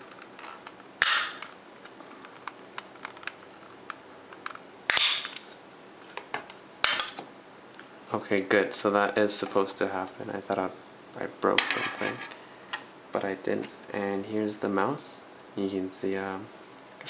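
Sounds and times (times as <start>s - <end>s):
plastic clips snapping: 2.3s - 5.5s.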